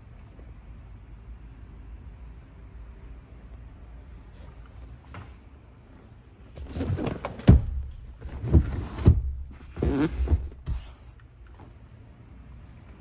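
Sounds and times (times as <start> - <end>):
rubbing against leather seat: 8.6 - 11.0.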